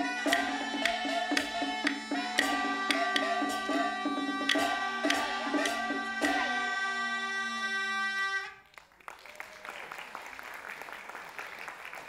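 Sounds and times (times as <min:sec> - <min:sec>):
traditional ensemble music: 0:00.0 - 0:08.5
audience applauding: 0:08.6 - 0:12.0.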